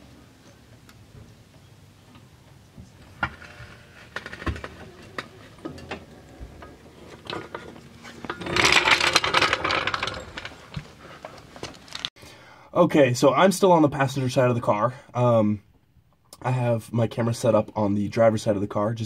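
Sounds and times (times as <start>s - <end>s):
jack scraping across concrete: 3.0s - 12.1s.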